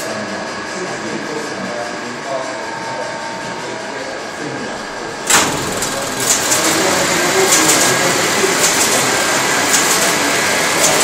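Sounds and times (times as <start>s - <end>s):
machine mechanical clatter: 4.8s - 11.0s
sharp mechanical clicks: 5.3s - 10.2s.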